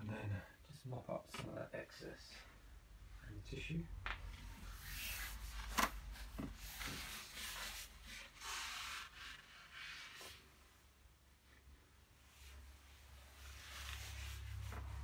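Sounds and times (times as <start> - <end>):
paper tissue rustling: 12.5 - 15.0.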